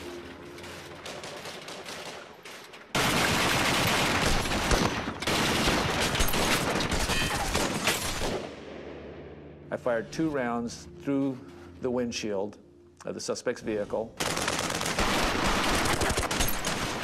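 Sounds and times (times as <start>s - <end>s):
heavy rapid gunfire: 14.2s - 17.0s.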